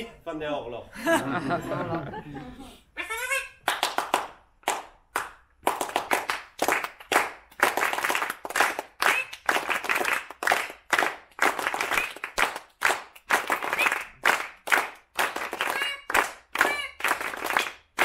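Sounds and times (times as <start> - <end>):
people applauding: 3.6 - 18.0.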